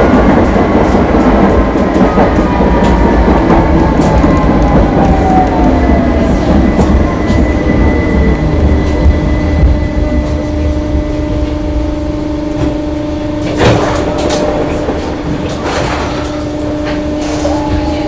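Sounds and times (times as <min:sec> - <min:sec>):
tram motor whine: 0:00.0 - 0:18.0
tram wheels rumbling on rails: 0:00.0 - 0:18.0.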